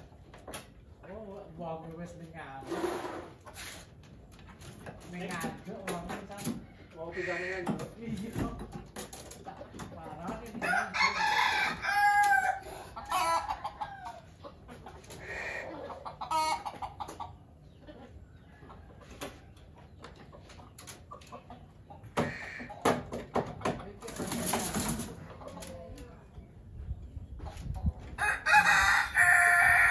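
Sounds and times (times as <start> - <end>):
chickens clucking: 0.0 - 29.9
rooster crowing: 10.6 - 12.6, 28.2 - 29.9.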